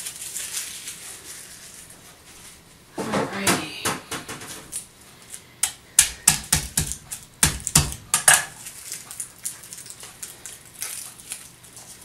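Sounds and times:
dry garlic skin crackling: 0.0s - 2.0s, 4.7s - 12.0s.

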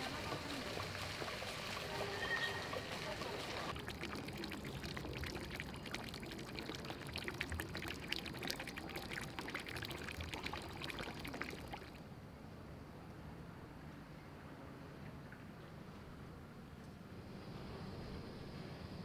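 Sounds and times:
water pouring and splashing: 0.0s - 12.0s.

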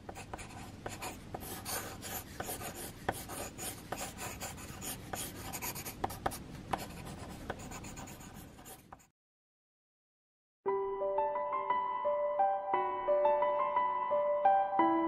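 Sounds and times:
drawing tool scratching paper: 0.1s - 9.1s.

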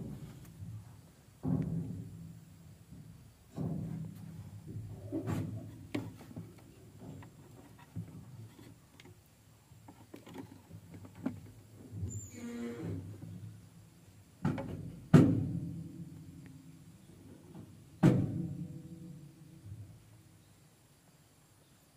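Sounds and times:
dull thumps with low ring: 0.0s - 7.2s, 14.4s - 16.4s, 17.8s - 20.0s.

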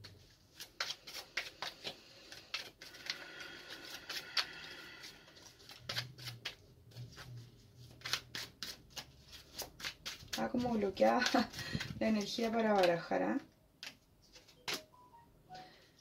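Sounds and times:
cards rustling: 0.0s - 13.2s, 13.8s - 14.9s
cards snapping and tapping: 13.8s - 14.9s.

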